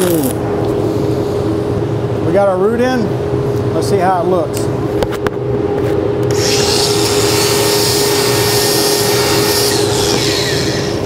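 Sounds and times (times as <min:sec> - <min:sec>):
angle grinder grinding steel: 0:06.3 - 0:11.0.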